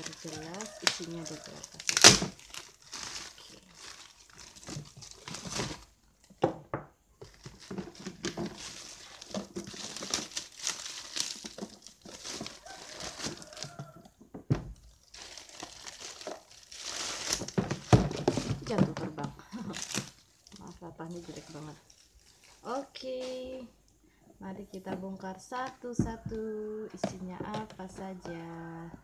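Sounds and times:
plastic wrap crinkling: 0:00.0 - 0:06.5, 0:07.2 - 0:14.1, 0:14.7 - 0:24.0.

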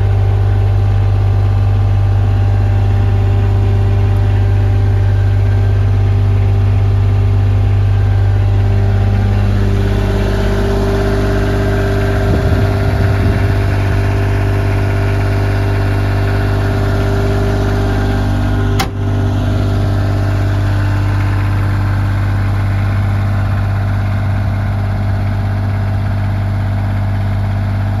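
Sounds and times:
loader engine idling: 0:00.0 - 0:28.0
sharp click: 0:18.8 - 0:19.0.

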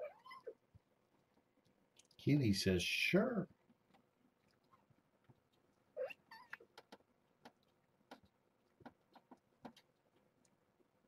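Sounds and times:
cat meowing: 0:00.0 - 0:00.6, 0:06.0 - 0:06.6
faint clicks and taps: 0:03.5 - 0:05.8, 0:06.5 - 0:11.0.

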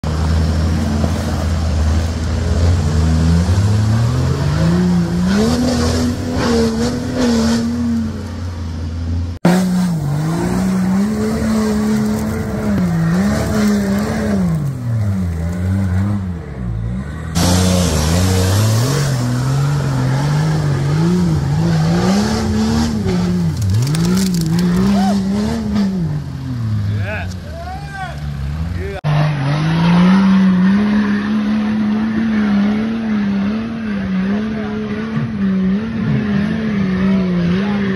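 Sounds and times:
diesel engine revving under load: 0:00.0 - 0:08.5, 0:09.2 - 0:27.4.

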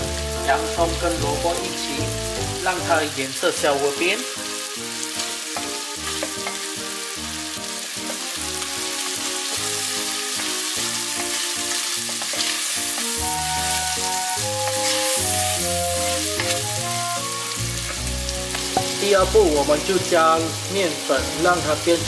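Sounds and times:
soft background music: 0:00.0 - 0:22.0
vegetables sizzling in a pot: 0:00.0 - 0:22.0
wooden spoon stirring: 0:05.6 - 0:06.6, 0:08.0 - 0:16.9.

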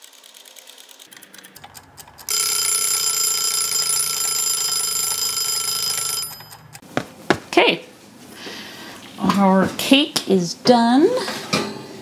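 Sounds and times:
kitchen timer ticking: 0:01.3 - 0:06.8
timer bell ringing: 0:02.3 - 0:06.8.

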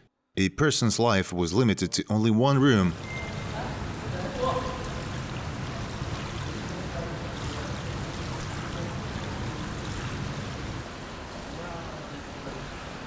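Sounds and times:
water sloshing in pool: 0:02.9 - 0:13.0.

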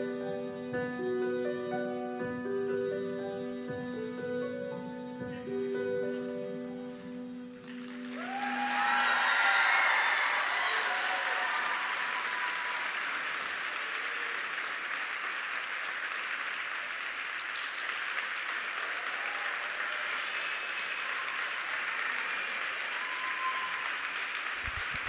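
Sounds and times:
audience applauding: 0:07.6 - 0:25.0.

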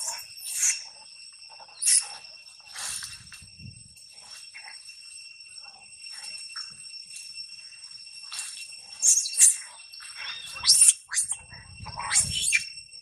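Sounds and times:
monkey screaming: 0:01.7 - 0:02.2, 0:09.0 - 0:09.6, 0:10.2 - 0:12.7.

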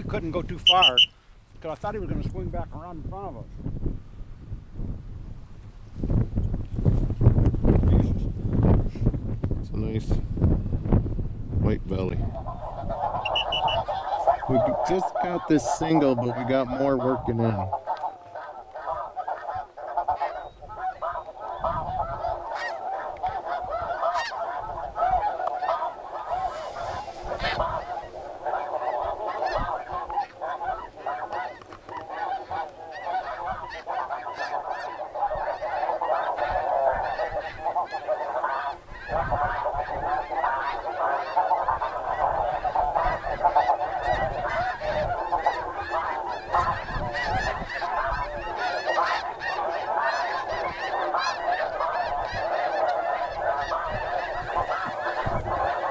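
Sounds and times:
snow geese honking and yelping: 0:00.0 - 0:01.1, 0:11.9 - 0:55.9.

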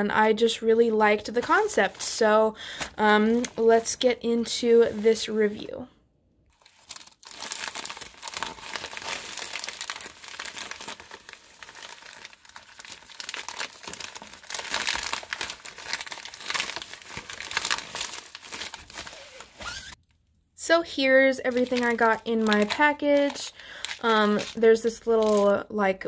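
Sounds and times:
plastic bag crinkling: 0:06.5 - 0:20.0, 0:21.5 - 0:25.6
plastic tearing: 0:06.5 - 0:20.0, 0:21.5 - 0:25.6
scissors cutting plastic: 0:21.8 - 0:25.6.

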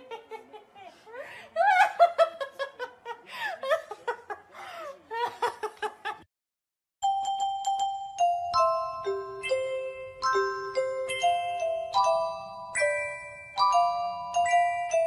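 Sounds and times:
chiming bell-like tune: 0:07.0 - 0:15.0.

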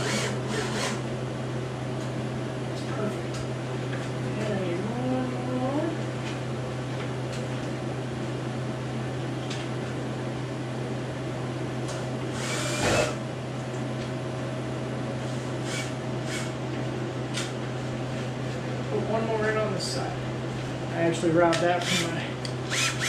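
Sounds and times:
machine whir: 0:00.0 - 0:01.0, 0:12.3 - 0:13.2, 0:22.7 - 0:23.0
low mechanical hum: 0:00.0 - 0:23.0.

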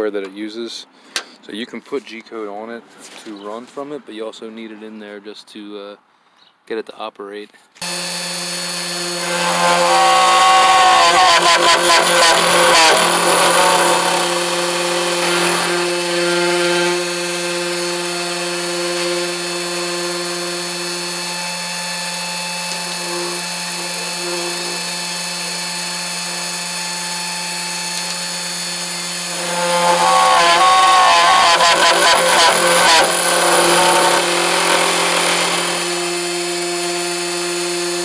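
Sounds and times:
cnc router spindle whining: 0:07.8 - 0:38.0.

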